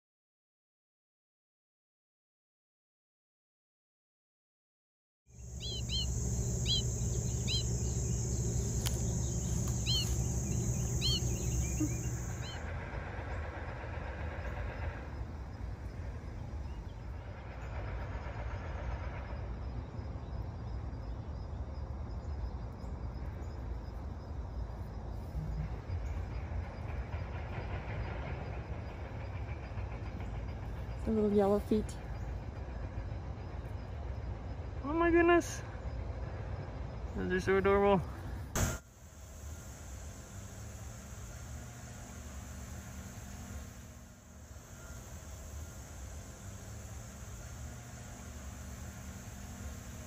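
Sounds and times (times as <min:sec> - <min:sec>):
high hiss: 0:05.4 - 0:12.6, 0:38.6 - 0:50.0
short bird chirps: 0:05.4 - 0:12.6
low rumble: 0:05.4 - 0:13.1.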